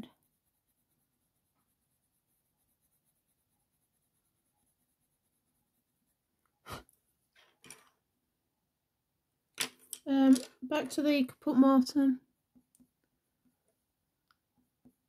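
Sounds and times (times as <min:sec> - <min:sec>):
pencil scratching on paper: 0:00.0 - 0:07.3.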